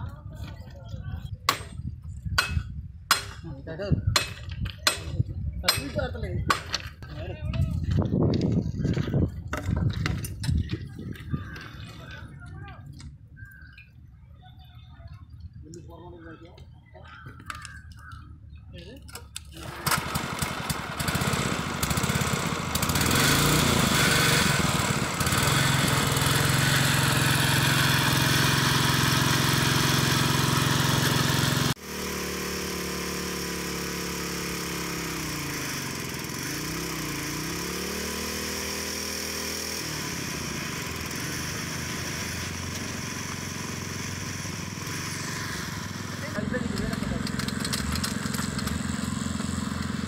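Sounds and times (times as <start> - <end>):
small petrol engine running: 19.4 - 50.0.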